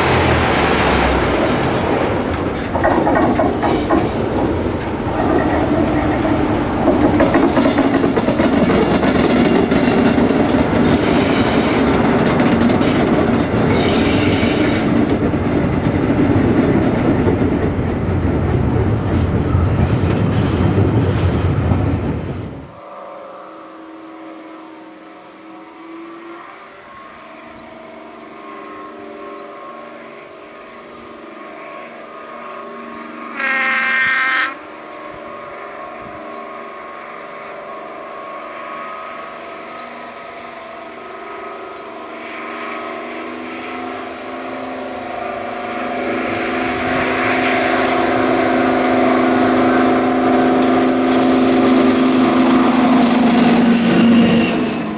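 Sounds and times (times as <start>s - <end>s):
diesel locomotive engine: 0.0s - 54.9s
train horn blast: 10.6s - 14.9s, 22.7s - 54.9s.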